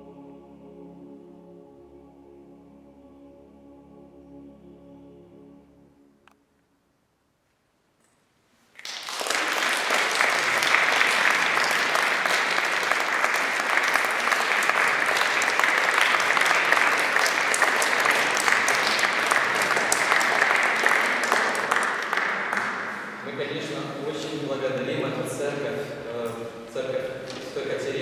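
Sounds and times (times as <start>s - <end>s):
audience applauding: 8.8s - 23.3s.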